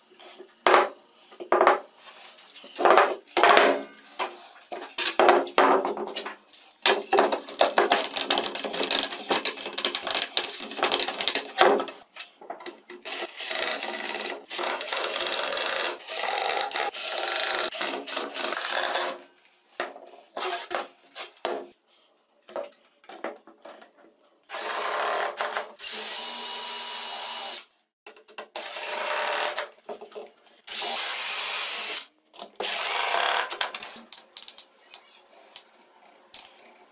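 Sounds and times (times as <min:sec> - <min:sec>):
knocks and scrapes of handled parts: 0:22.4 - 0:24.4
cordless drill boring plastic: 0:24.5 - 0:27.7, 0:30.7 - 0:33.5.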